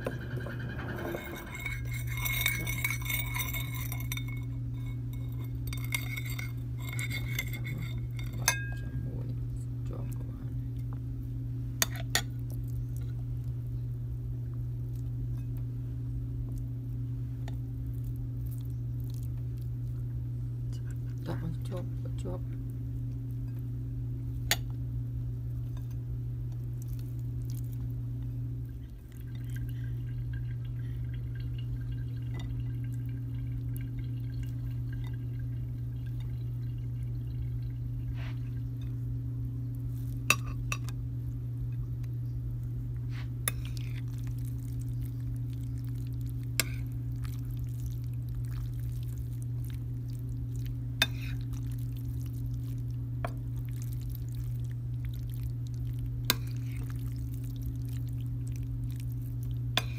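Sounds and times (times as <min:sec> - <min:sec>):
steady low hum: 0:00.0 - 0:59.9
metal spoon clinking on ceramic plate: 0:00.1 - 0:08.9.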